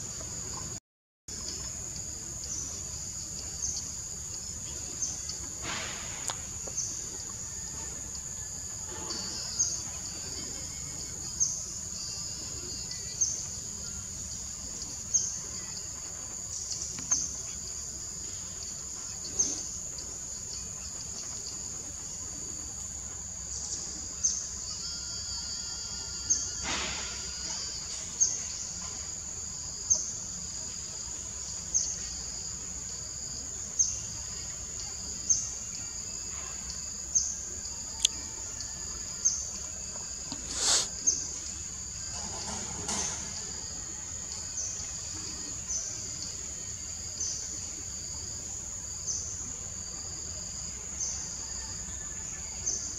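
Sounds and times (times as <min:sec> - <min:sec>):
insect chorus drone: 0:00.0 - 0:52.9
short sharp insect chirp: 0:23.5 - 0:31.0, 0:33.1 - 0:48.1.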